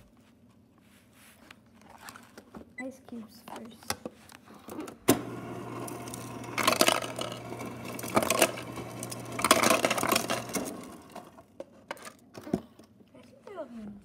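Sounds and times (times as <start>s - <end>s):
ice cubes rattling into plastic cup: 6.1s - 11.2s.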